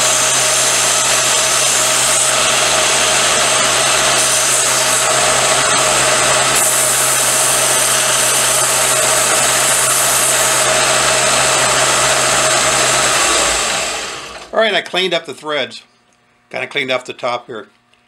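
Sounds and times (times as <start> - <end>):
metal grinding hiss: 0.0 - 10.7
belt sander motor hum: 0.0 - 14.5.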